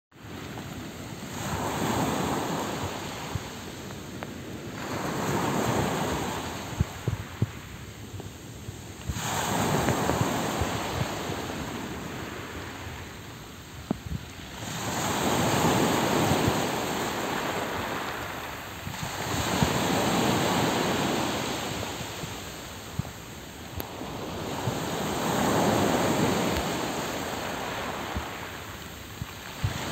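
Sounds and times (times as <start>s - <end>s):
small waves breaking on pebbles: 0.3s - 7.6s, 14.0s - 29.9s.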